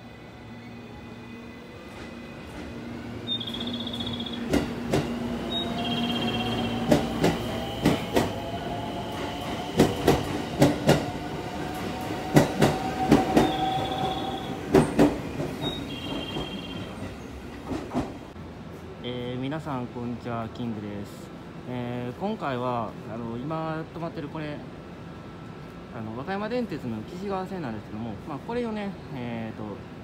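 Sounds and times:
electric train inverter whining: 0:00.0 - 0:17.2
train wheels clicking over rail joints: 0:03.9 - 0:05.5, 0:06.7 - 0:08.4, 0:09.2 - 0:18.3.

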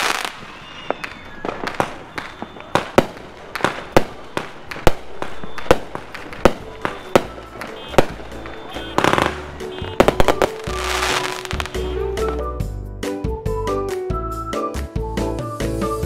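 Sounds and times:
fireworks bangs: 0:00.0 - 0:12.4
fireworks crackling: 0:00.0 - 0:12.6
background music: 0:05.9 - 0:16.0.

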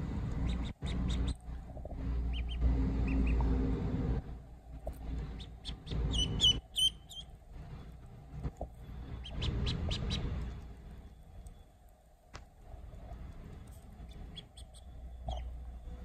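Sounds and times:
low rumble: 0:00.0 - 0:16.0
duckling peeping: 0:00.1 - 0:03.5, 0:05.1 - 0:08.0, 0:08.6 - 0:11.5, 0:12.8 - 0:15.8.

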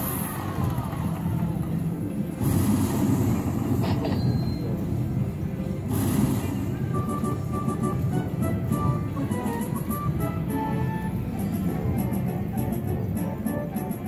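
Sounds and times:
murmur of machines and people: 0:00.0 - 0:14.0
slot machine tones: 0:05.9 - 0:14.0.

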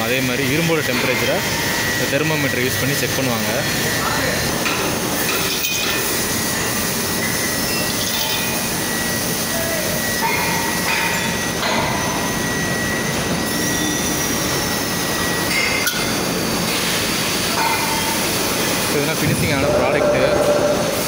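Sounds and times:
industrial foundry din: 0:00.0 - 0:21.0
thin high whine: 0:18.9 - 0:21.0.

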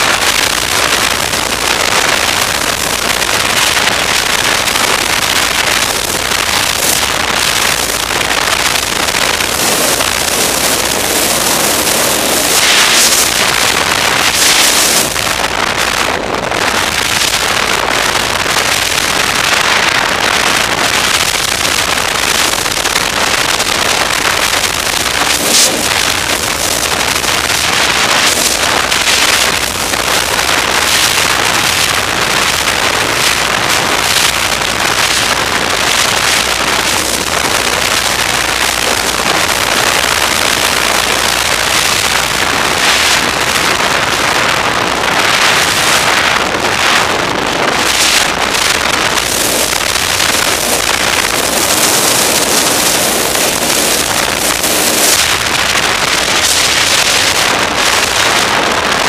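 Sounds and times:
wind on microphone: 0:00.0 - 0:59.0
snowmobile engine and track: 0:09.4 - 0:15.2, 0:25.2 - 0:26.8.

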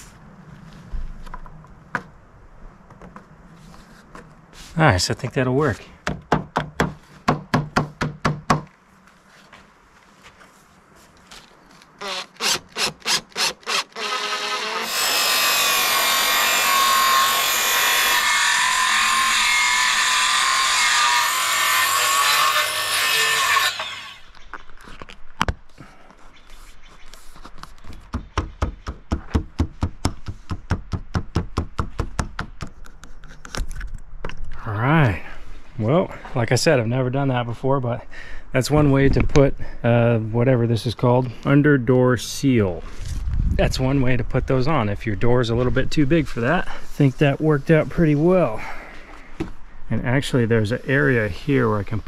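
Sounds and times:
circular saw cutting wood: 0:12.0 - 0:24.4.

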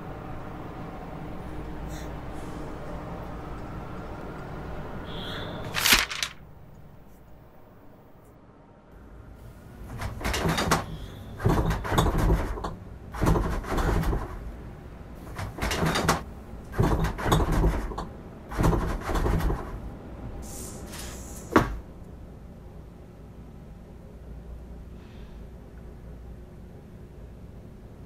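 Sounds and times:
scraping and rustling: 0:05.7 - 0:06.4.

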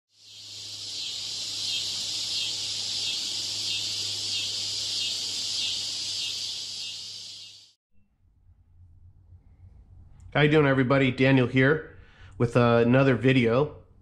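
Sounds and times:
cicada buzzing: 0:00.1 - 0:07.8
low steady hum: 0:08.0 - 0:12.8.

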